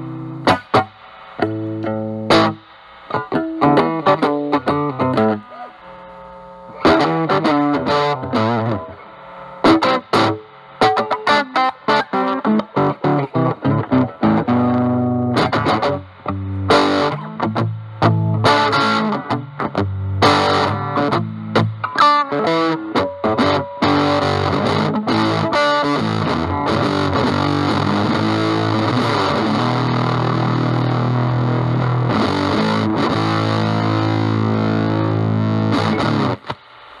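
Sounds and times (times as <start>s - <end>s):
fuzzy distorted electric guitar: 0.0s - 37.0s.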